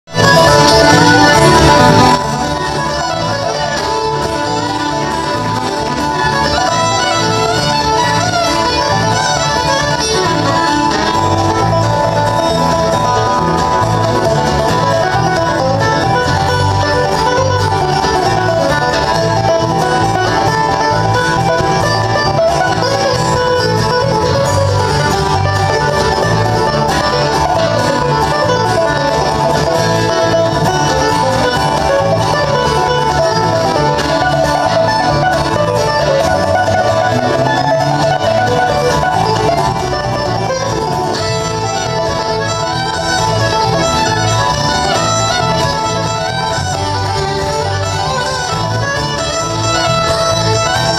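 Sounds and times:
picked banjo: 0.0s - 50.9s
bluegrass band playing: 0.1s - 50.9s.

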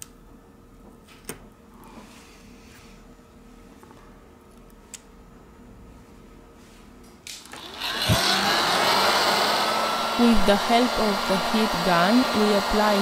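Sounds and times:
heat gun fan rushing air: 7.3s - 13.0s.

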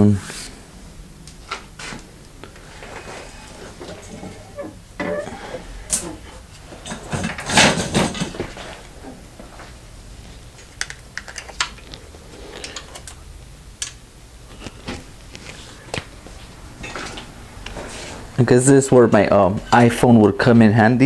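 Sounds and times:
rustling scrape: 17.8s - 18.3s.

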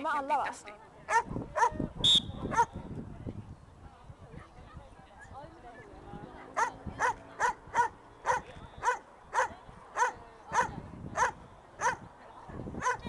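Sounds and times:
dog barking: 1.1s - 1.8s, 2.5s - 2.7s, 6.6s - 12.0s, 12.8s - 13.0s.

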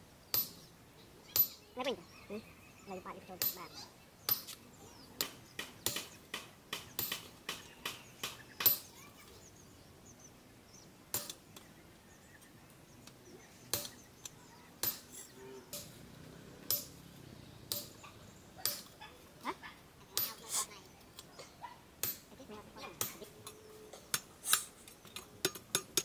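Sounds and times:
hammer striking metal: 16.6s - 17.0s, 17.7s - 18.0s.

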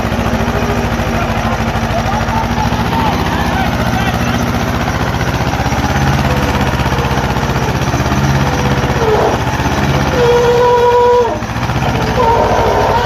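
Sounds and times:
diesel tractor engines under load: 0.0s - 13.0s
steady whine: 0.0s - 13.0s.

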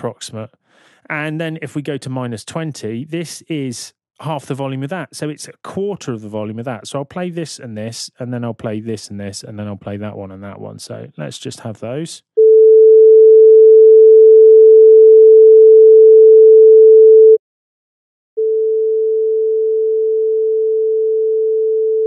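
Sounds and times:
sine wave test tone: 12.4s - 17.4s, 18.4s - 22.0s.

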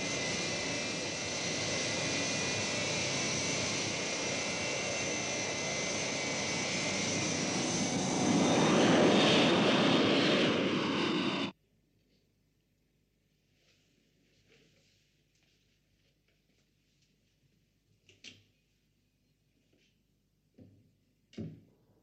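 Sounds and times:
jet engines roaring: 0.0s - 11.6s.

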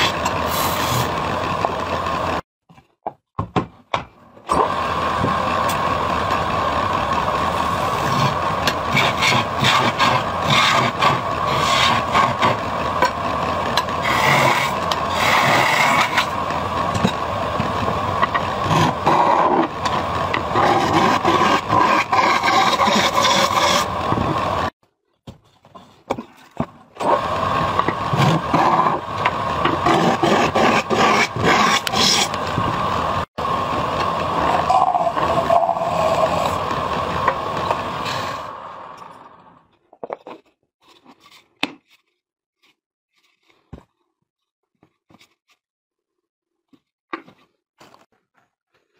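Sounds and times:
wood lathe humming: 4.6s - 24.7s, 27.1s - 39.3s
turning tool scraping wood: 7.5s - 24.5s, 27.0s - 32.7s, 34.3s - 38.4s.

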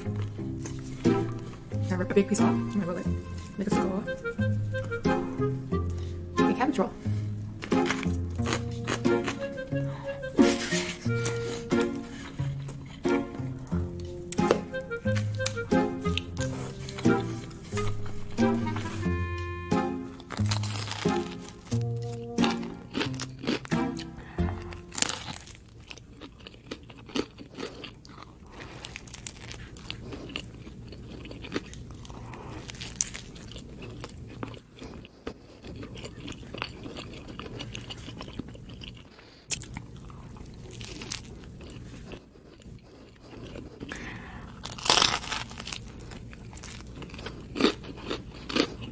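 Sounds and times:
wet chewing: 0.0s - 6.3s, 7.0s - 48.9s
crust crunching: 20.1s - 24.1s, 24.7s - 32.0s, 44.6s - 48.9s.

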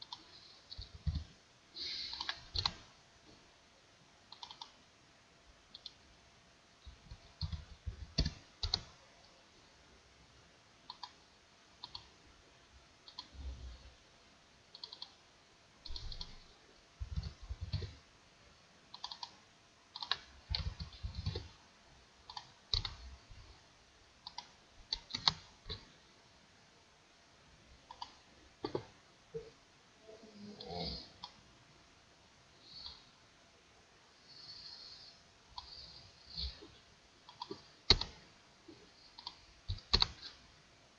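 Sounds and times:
computer mouse clicks: 0.0s - 2.9s, 4.3s - 4.8s, 5.7s - 6.0s, 6.9s - 9.0s, 10.9s - 11.2s, 11.8s - 12.2s, 13.0s - 13.6s, 14.7s - 15.2s, 15.8s - 18.0s, 18.9s - 21.6s, 22.2s - 23.1s, 24.2s - 25.8s, 27.9s - 29.5s, 30.6s - 31.4s, 32.7s - 33.1s, 35.5s - 38.2s, 39.1s - 40.4s
keyboard keystrokes: 2.1s - 2.8s, 4.3s - 4.7s, 7.4s - 8.9s, 11.8s - 12.1s, 15.8s - 16.4s, 18.9s - 19.4s, 20.0s - 21.5s, 24.2s - 25.8s, 37.3s - 38.2s, 39.2s - 40.4s.

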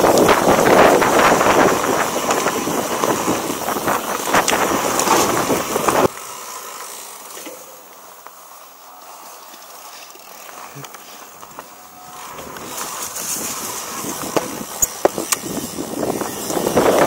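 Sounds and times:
wind buffeting microphone: 0.0s - 6.1s, 11.4s - 17.0s
mountain bike rattling on rocky trail: 0.0s - 17.0s.

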